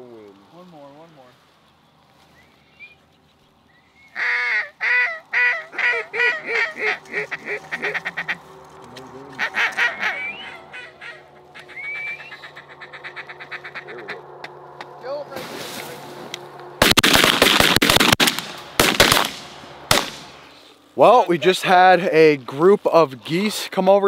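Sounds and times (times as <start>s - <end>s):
goose honking: 4.1s - 15.0s
soft clucking notes: 4.2s - 15.0s.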